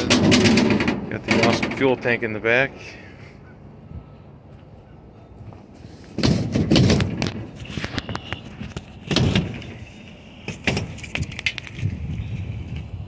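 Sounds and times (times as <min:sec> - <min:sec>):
clunks and scrapes on metal: 0:00.0 - 0:02.1, 0:05.8 - 0:11.6.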